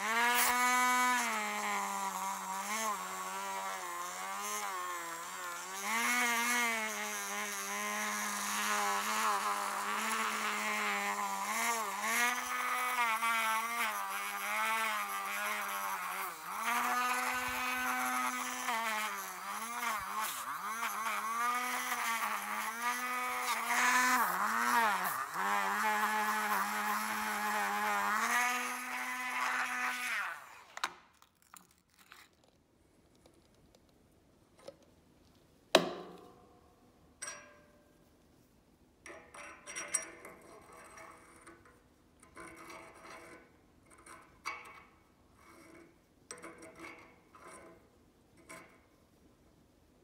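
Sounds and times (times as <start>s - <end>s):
rotary tool motor whine: 0.0s - 31.0s.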